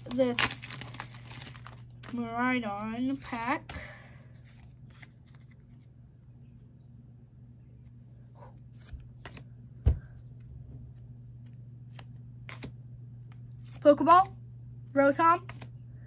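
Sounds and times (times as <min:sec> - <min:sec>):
steady low hum: 0:00.0 - 0:16.0
trading cards sliding and rustling: 0:00.1 - 0:05.9.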